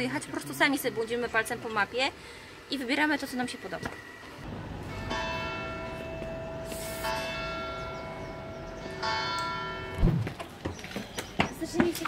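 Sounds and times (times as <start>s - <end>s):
church bell tolling: 4.4s - 10.0s.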